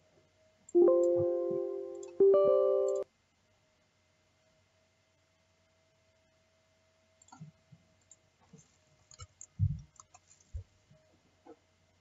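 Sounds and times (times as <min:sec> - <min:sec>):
faint steady hum: 0:00.0 - 0:12.0
computer mouse clicks: 0:09.1 - 0:10.3.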